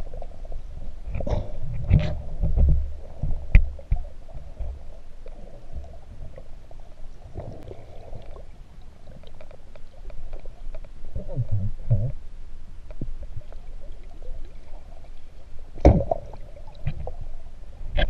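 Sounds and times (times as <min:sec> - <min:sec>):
underwater rumble of moving water: 0:00.0 - 0:18.0
small clicks and crackles: 0:07.3 - 0:11.2.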